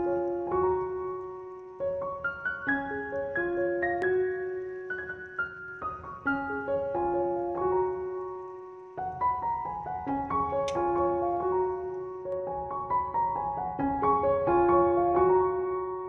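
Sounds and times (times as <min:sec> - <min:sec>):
gentle piano melody: 0:00.0 - 0:16.0.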